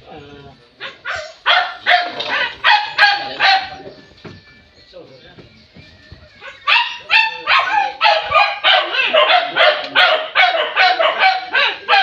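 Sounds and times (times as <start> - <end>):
dog barking rapidly: 0.8 - 3.9, 6.4 - 12.0.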